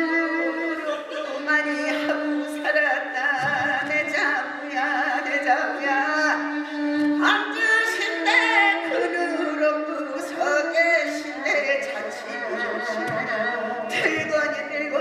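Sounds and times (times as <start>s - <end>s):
ornamented singing with vibrato: 0.0s - 15.0s.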